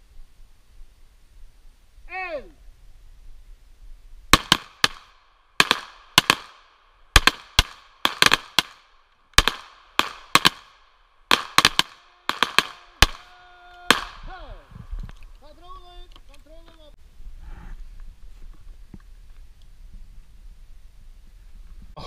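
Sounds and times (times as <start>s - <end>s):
pistol shots with echo: 4.4s - 13.3s, 13.9s - 14.2s.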